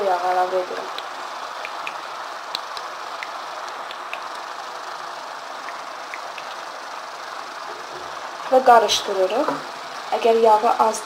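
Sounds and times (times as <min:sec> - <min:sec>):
vegetables sizzling in oil: 0:00.0 - 0:11.0.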